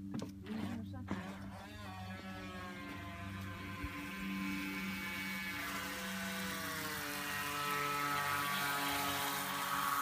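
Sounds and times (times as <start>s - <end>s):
toy speedboat motor whining: 0.4s - 10.0s.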